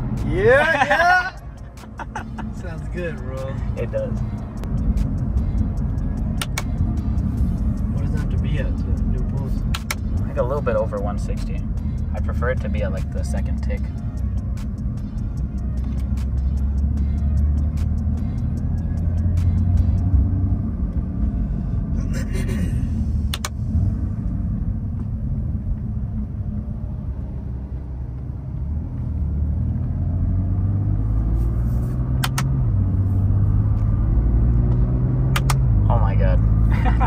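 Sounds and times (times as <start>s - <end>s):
car engine while driving: 0.0s - 37.0s
sharp clicks: 6.4s - 6.8s, 9.6s - 10.1s, 23.3s - 23.6s, 32.2s - 32.6s, 35.3s - 35.7s.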